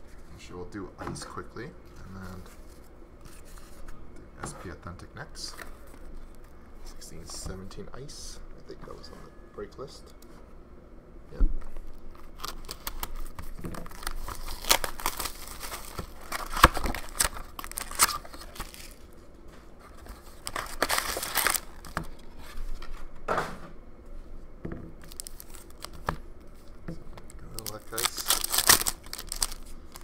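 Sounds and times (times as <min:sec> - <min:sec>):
shrink-wrap crinkling and tearing: 0:12.2 - 0:19.1, 0:20.1 - 0:22.5, 0:25.0 - 0:26.1, 0:27.3 - 0:30.0.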